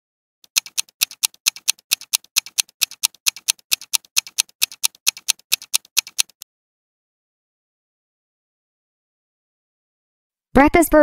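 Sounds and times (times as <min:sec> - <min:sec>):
fast clock ticking: 0:00.5 - 0:06.4.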